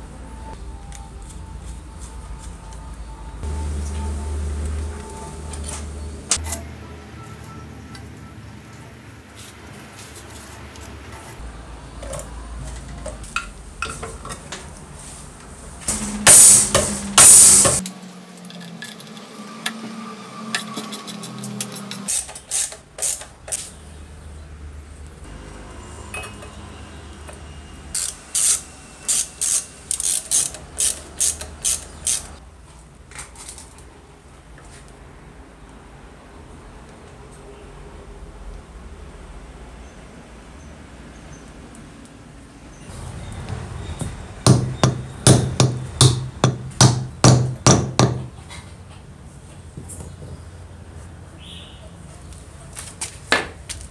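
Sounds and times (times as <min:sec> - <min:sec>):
loud hissing bursts: 0:15.9 - 0:17.8.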